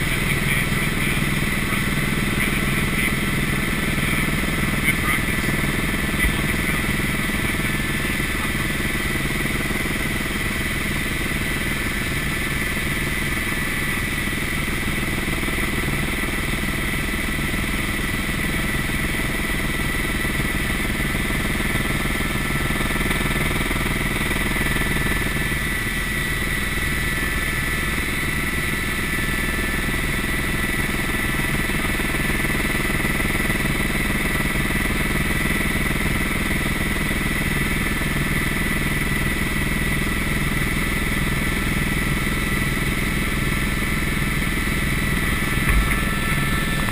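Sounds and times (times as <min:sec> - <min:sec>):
helicopter engine and rotor drone: 0:00.0 - 0:46.9.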